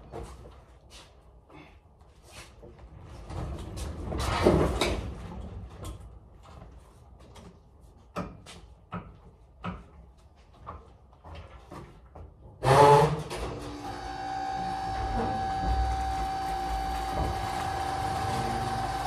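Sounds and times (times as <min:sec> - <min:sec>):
pallet jack clunks: 0:12.6 - 0:19.0
pallet jack rattling rumble: 0:14.7 - 0:19.0.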